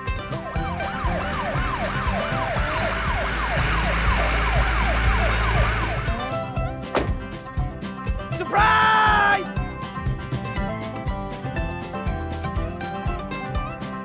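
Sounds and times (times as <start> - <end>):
toy siren yelping: 0.6 - 6.2.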